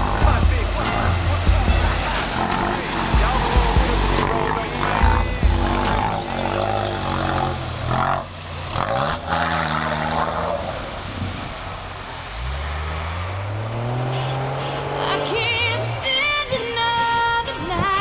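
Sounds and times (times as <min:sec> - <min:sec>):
off-road vehicle engine revving: 0:00.0 - 0:18.0.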